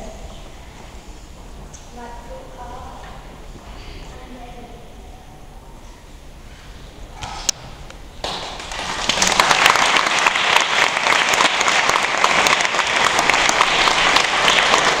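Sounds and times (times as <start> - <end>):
audience applauding: 8.2 - 15.0.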